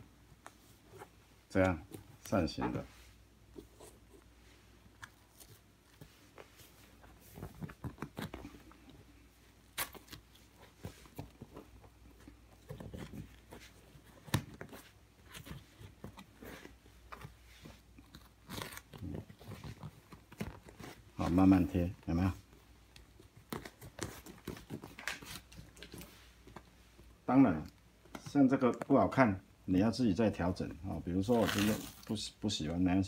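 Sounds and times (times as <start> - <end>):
sheet crinkling and rubbing on upholstery: 31.2 - 32.2.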